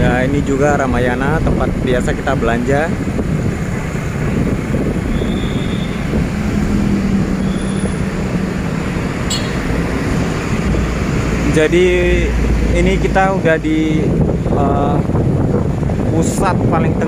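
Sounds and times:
road traffic rumble: 0.0 - 17.0
engine hum: 2.9 - 16.1.

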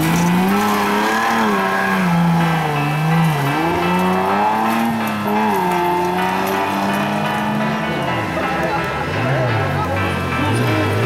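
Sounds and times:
engine revving in mud: 0.0 - 11.0.

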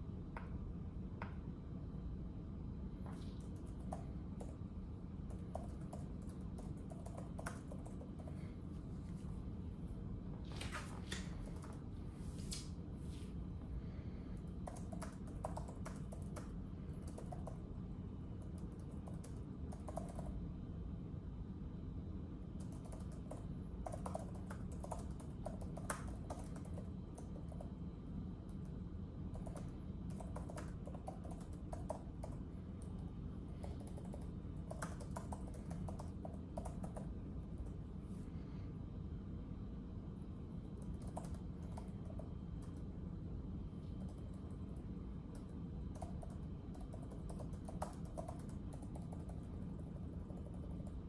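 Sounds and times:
low background rumble: 0.0 - 51.0
typing on a keyboard: 3.4 - 4.6, 5.2 - 8.4, 14.6 - 17.7, 18.4 - 20.4, 22.6 - 27.8, 28.5 - 37.8, 40.8 - 42.8, 44.0 - 51.0.

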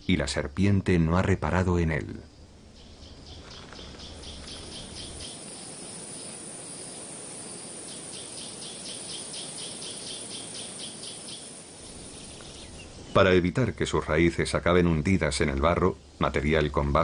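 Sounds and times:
hiss of natural ambience: 0.0 - 17.0
insect chirping: 0.0 - 17.0.

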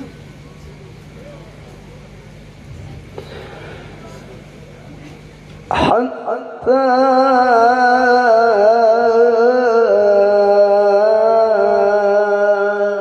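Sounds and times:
man chanting through pa: 5.7 - 13.0.

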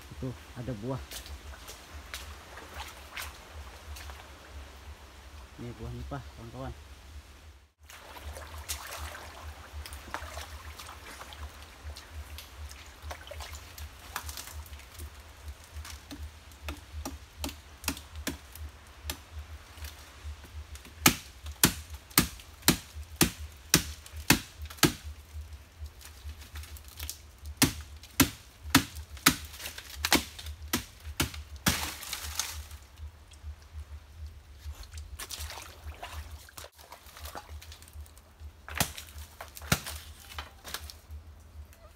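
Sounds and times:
sharp cracking knocks: 20.8 - 25.1, 27.6 - 32.1.

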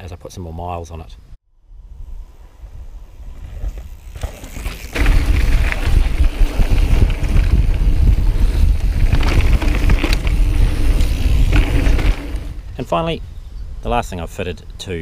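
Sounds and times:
wind buffeting microphone: 1.7 - 14.0
bike tyres rattling over trail: 3.1 - 13.1.

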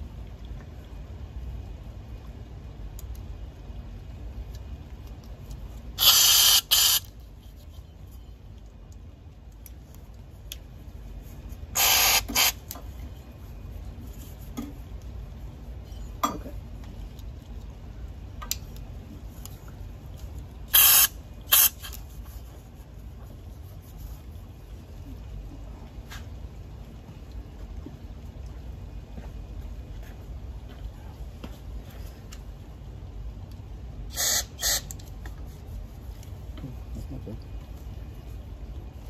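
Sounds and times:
aerosol can spraying: 6.0 - 7.1, 11.8 - 12.6, 20.7 - 22.0, 34.1 - 34.9.

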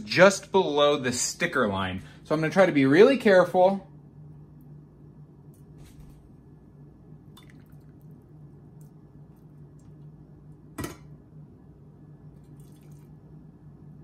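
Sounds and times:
water trickling into glass dish: 7.3 - 8.1, 12.4 - 13.1.

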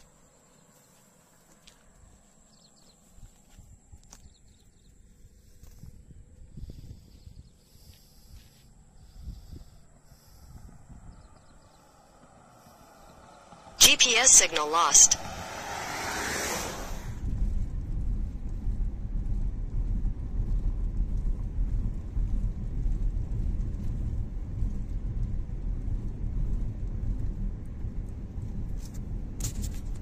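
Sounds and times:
road and wind noise: 0.0 - 30.0.

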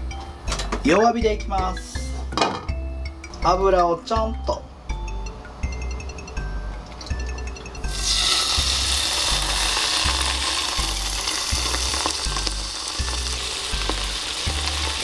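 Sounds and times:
beef sizzling in frying pan: 7.9 - 15.0.

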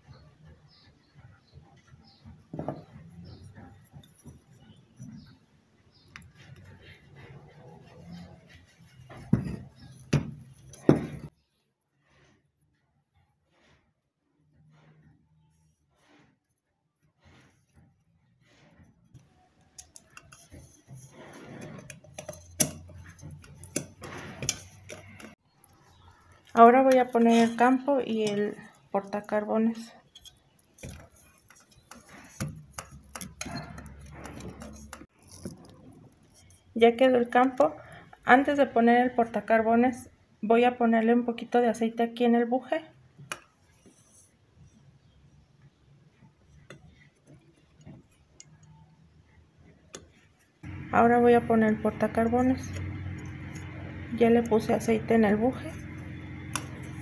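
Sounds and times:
metal rubbing: 0.8 - 11.3, 14.5 - 36.9, 50.6 - 57.0.

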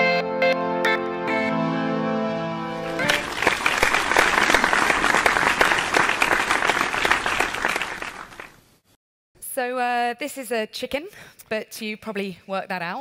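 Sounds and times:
held music chord: 0.0 - 3.4
audience applause: 2.9 - 8.6.

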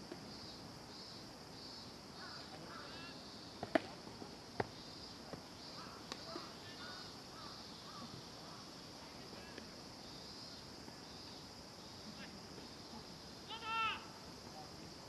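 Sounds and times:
insect chorus: 0.0 - 15.0
faint distant calls: 0.4 - 15.0
baseball smacking into mitt: 3.6 - 4.0.

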